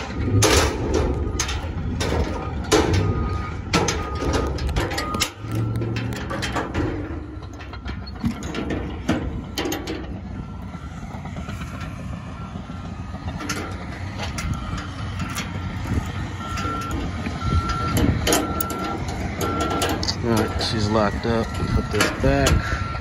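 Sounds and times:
backup alarm beeping: 0.0 - 23.0
low vehicle rumble: 0.0 - 23.0
metal latch clicks and knocks: 17.9 - 20.2.

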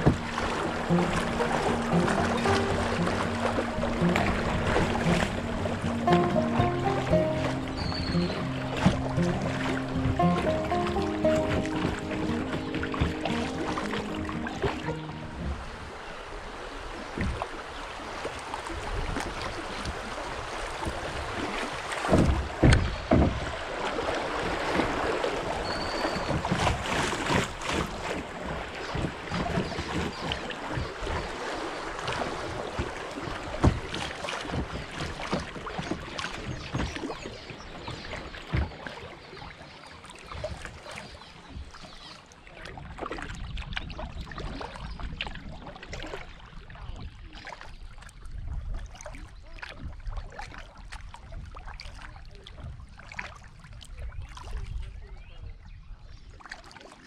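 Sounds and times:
splashes and clicks: 0.0 - 15.6, 20.6 - 46.4
river water rushing: 0.0 - 18.6.

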